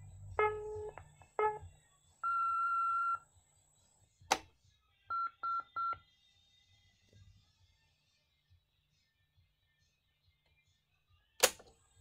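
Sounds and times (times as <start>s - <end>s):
answering machine tones: 0.4s - 1.6s, 2.2s - 3.2s
sharp click: 11.4s - 11.7s.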